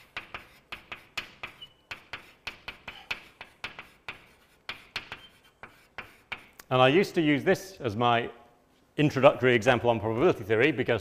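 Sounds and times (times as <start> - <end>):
taps and scrapes writing on board: 0.0 - 6.7
faint squeak on board: 1.5 - 1.9, 5.1 - 5.6.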